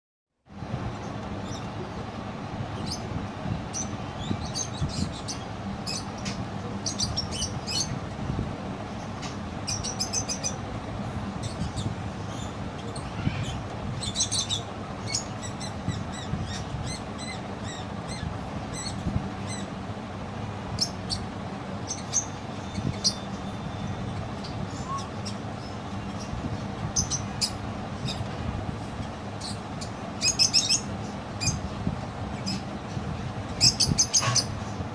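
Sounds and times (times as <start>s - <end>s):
steady low hum: 0.5s - 34.9s
budgerigars chirping: 3.8s - 8.0s, 9.7s - 10.6s, 20.7s - 28.2s, 29.4s - 31.6s, 33.6s - 34.6s.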